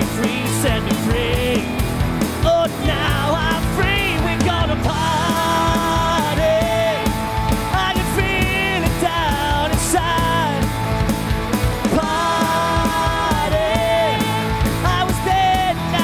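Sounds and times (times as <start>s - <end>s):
person singing: 0.0s - 1.8s, 2.4s - 10.8s, 11.8s - 16.0s
live rock band playing: 0.0s - 16.0s.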